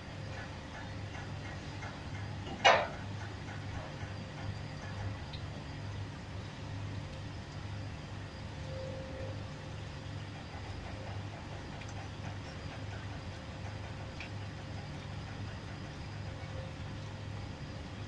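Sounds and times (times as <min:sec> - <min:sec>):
faint steady whine: 0:00.0 - 0:18.0
heavy machinery humming: 0:00.0 - 0:18.0
light ticks: 0:14.2 - 0:14.4.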